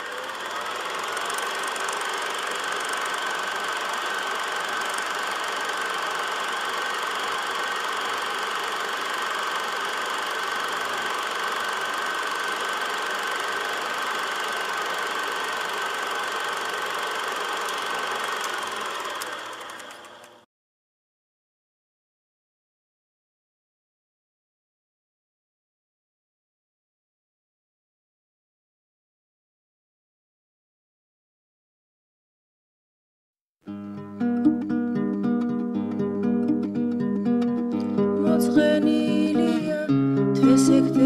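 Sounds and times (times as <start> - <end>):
thin steady whine: 0.0 - 20.4
film projector whirring and clattering: 0.0 - 20.5.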